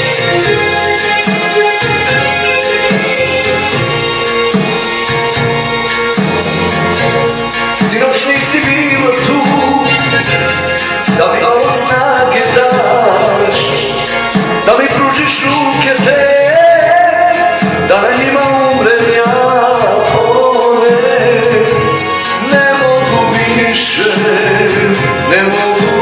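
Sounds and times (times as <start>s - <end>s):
instrumental backing music: 0.0s - 26.0s
man singing into microphone: 7.8s - 26.0s.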